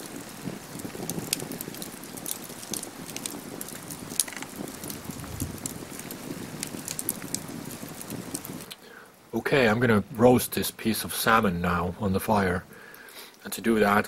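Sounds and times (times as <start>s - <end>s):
campfire crackling and popping: 0.0s - 14.0s
rustle of flames: 0.0s - 14.0s.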